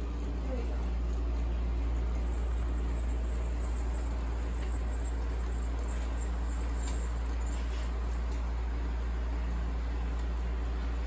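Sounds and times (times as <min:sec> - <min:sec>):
faint high whine: 0:00.0 - 0:11.0
model train humming: 0:00.0 - 0:11.0.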